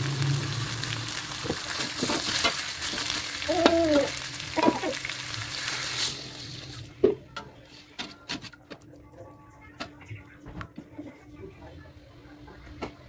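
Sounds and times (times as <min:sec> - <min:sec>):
food sizzling in a wok: 0:00.0 - 0:07.0.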